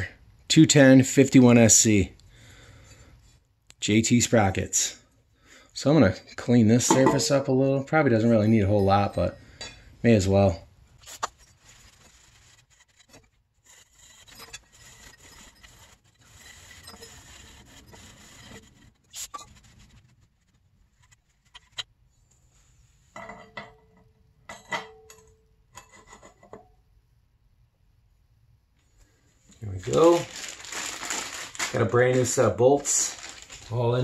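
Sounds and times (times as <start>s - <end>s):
rag scrubbing metal: 11.0s - 21.8s.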